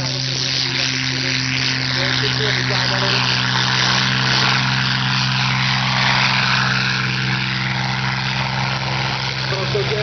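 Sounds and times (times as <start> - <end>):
propeller aircraft engine running: 0.0 - 10.0.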